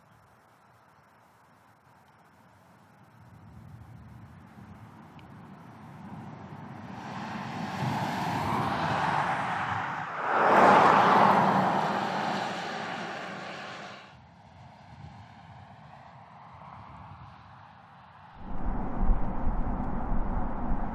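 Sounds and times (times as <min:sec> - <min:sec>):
car tyre and road noise passing: 0:05.4 - 0:14.2.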